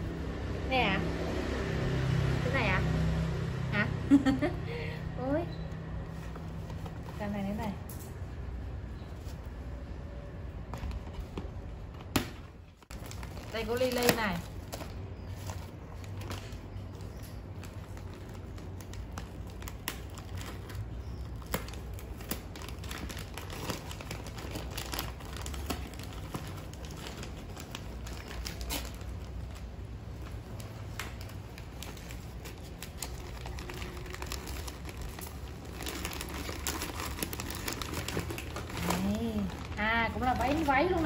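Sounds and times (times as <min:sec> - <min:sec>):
wrapping paper crinkling: 0:12.7 - 0:41.0.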